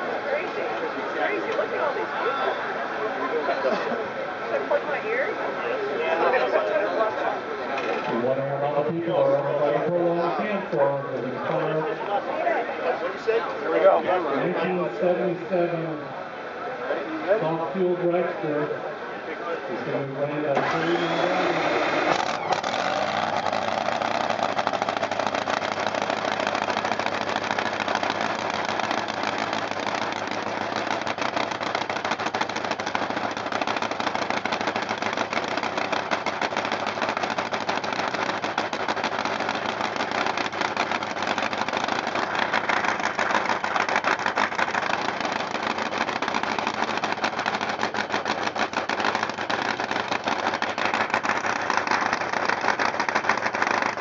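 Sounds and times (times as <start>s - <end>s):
dragster engine idling: 20.6s - 54.0s.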